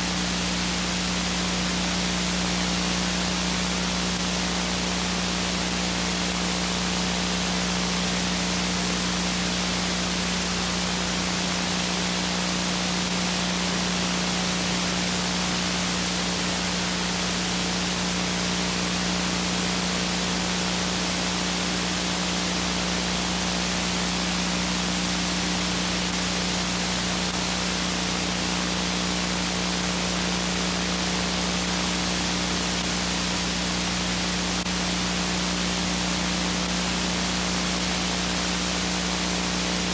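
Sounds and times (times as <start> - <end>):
steady hiss: 0.0 - 39.9.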